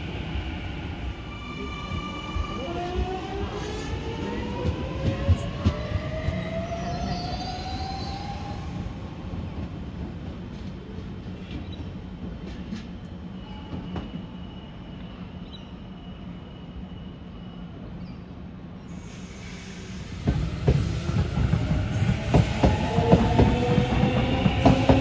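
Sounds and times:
train low hum and rumble: 0.0s - 25.0s
distant train wheel squeal: 11.6s - 25.0s.

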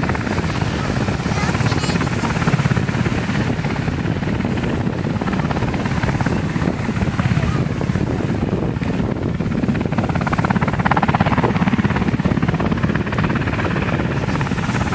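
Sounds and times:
helicopter rotor chopping: 0.0s - 14.9s.

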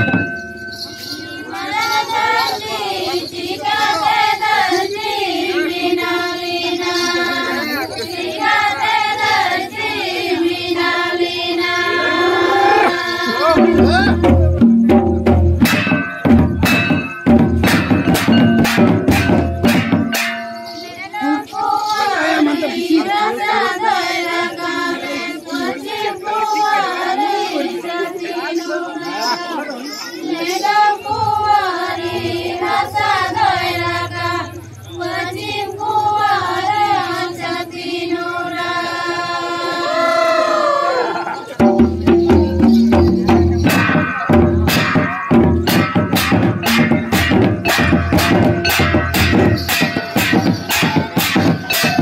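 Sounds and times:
folk drums beating: 0.0s - 0.6s, 12.0s - 21.0s, 41.4s - 52.0s
women singing in unison: 1.5s - 14.3s, 21.0s - 41.3s.

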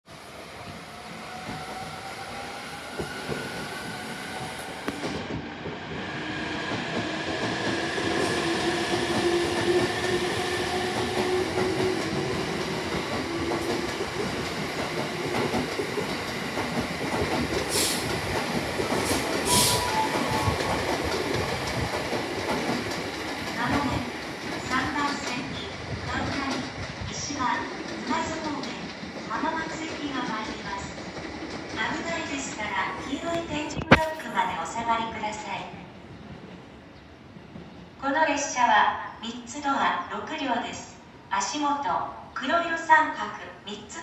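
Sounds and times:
wheels rumbling on rail: 2.8s - 27.0s
short air hisses: 17.7s - 18.1s, 19.1s - 19.9s.

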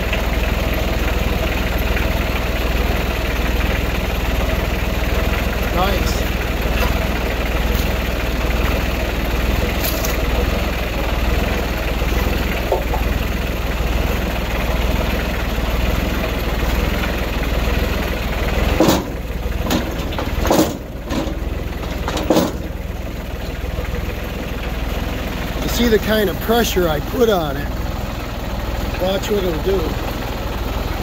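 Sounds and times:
tractor engine idling: 0.0s - 31.0s
sharp knocks: 18.7s - 21.4s, 22.0s - 22.8s.

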